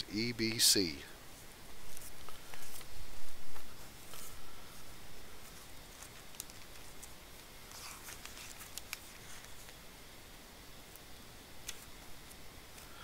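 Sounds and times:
paper rustling: 0:01.4 - 0:02.9, 0:05.4 - 0:09.8.

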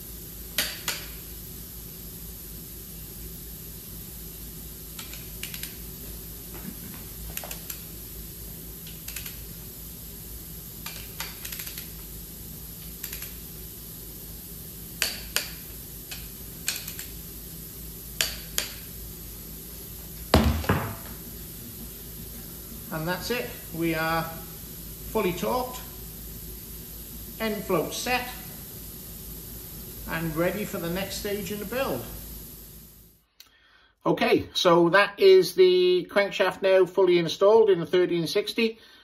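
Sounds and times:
ratchet clicks: 0:05.0 - 0:05.8, 0:08.8 - 0:09.4, 0:10.8 - 0:12.0, 0:12.8 - 0:13.4, 0:15.0 - 0:17.2, 0:18.2 - 0:18.9
torque wrench sharp clicks: 0:05.0 - 0:05.8, 0:08.8 - 0:09.4, 0:10.8 - 0:11.9, 0:12.8 - 0:13.4, 0:15.0 - 0:17.2, 0:18.2 - 0:18.9.

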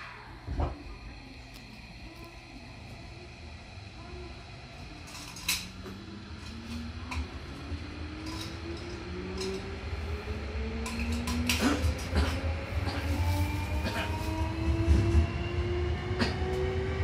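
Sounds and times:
train wheels rumbling on track: 0:03.3 - 0:17.0.

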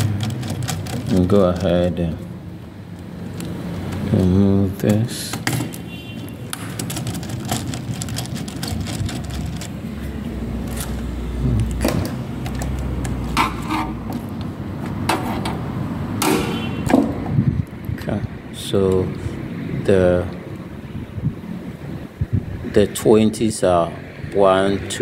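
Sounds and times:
plastic breakers unclipped from rail: 0:16.2 - 0:17.1.

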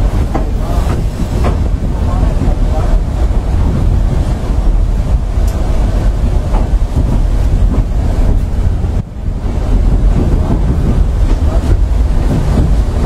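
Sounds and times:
train carriage rumbling and rattling: 0:00.0 - 0:13.0.

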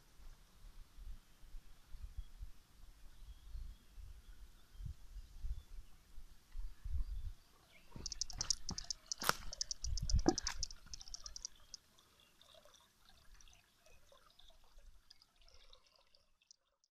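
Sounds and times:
rapid trill of high ticks: 0:08.0 - 0:11.9, 0:16.4 - 0:16.9
water trickling and dripping: 0:08.0 - 0:16.9.

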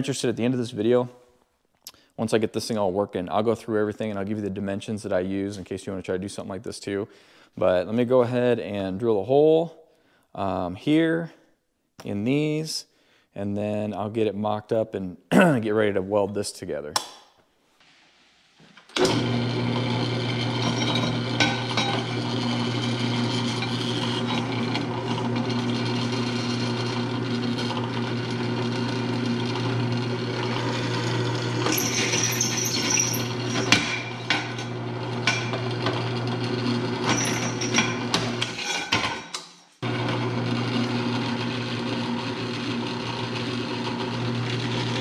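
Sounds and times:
drill press motor humming: 0:19.0 - 0:38.6, 0:39.8 - 0:45.0
drill bit scraping through steel: 0:30.4 - 0:35.7, 0:37.0 - 0:38.9.

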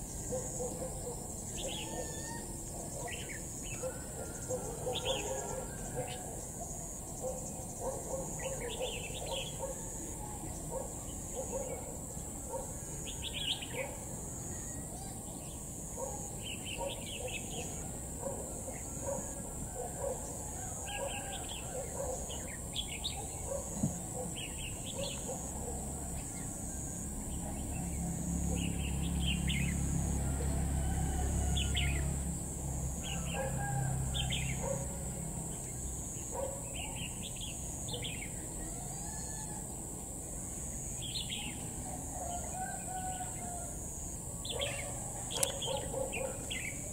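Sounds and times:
birds chirping: 0:00.0 - 0:26.5, 0:44.4 - 0:46.9.

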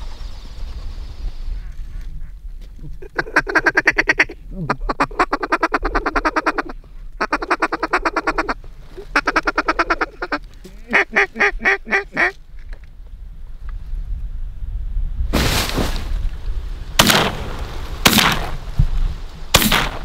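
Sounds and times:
duck quacking: 0:03.0 - 0:12.4.

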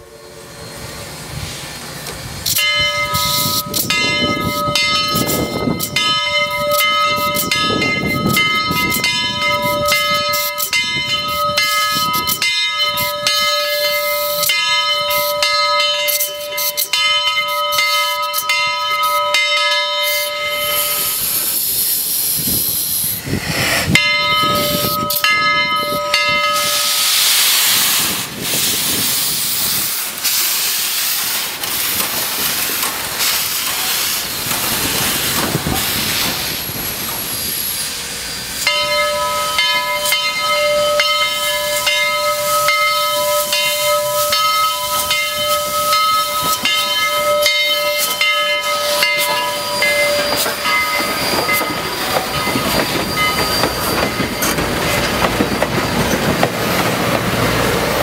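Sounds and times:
steam hiss: 0:00.0 - 0:06.0, 0:20.0 - 0:57.9
train wheels clacking on rails: 0:02.0 - 0:58.0.

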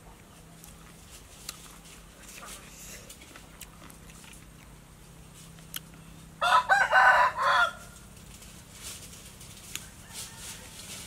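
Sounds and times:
rooster crowing: 0:06.4 - 0:08.0, 0:09.7 - 0:11.0.

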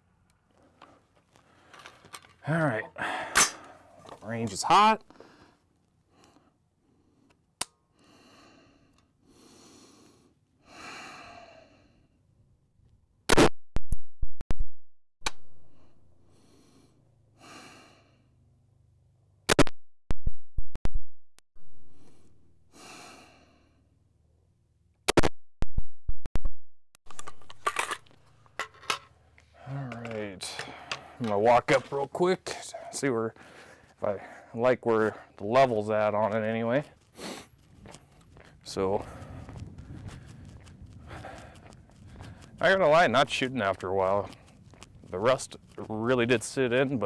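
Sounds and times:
faint breaths: 0:00.5 - 0:02.2, 0:03.0 - 0:04.0, 0:05.1 - 0:12.3, 0:15.7 - 0:18.4, 0:21.9 - 0:24.0, 0:29.2 - 0:31.3, 0:32.4 - 0:35.5, 0:36.8 - 0:42.7.

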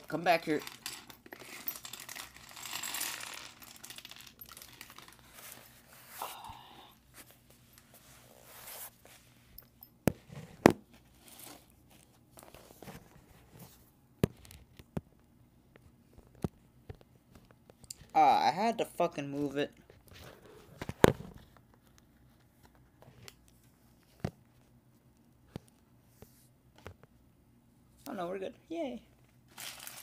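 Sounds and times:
plastic bags rustling: 0:00.0 - 0:06.4, 0:29.5 - 0:30.0.

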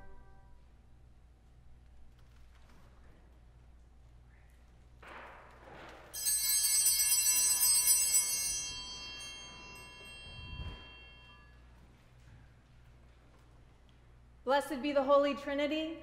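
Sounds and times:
small bell ringing: 0:06.2 - 0:11.8.

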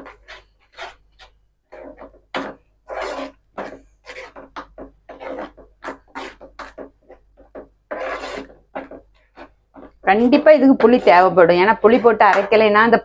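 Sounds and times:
spoon scraping thick paste in pan: 0:00.0 - 0:13.0.

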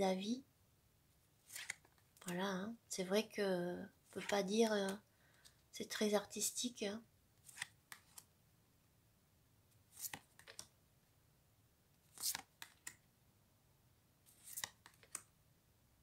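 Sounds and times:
cards swishing: 0:01.4 - 0:02.4, 0:07.4 - 0:08.3, 0:09.9 - 0:10.7, 0:12.1 - 0:13.0, 0:14.3 - 0:15.2.

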